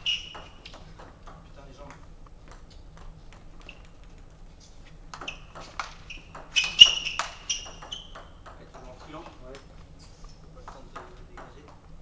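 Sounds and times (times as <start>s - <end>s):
table tennis ball clicking: 0.0s - 4.5s, 5.1s - 9.8s, 10.6s - 11.8s.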